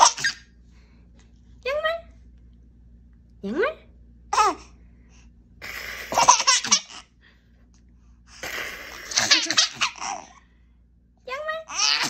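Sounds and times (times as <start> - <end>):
baby laughing: 0.0 - 0.5, 5.6 - 7.1, 8.4 - 10.4, 11.7 - 12.0.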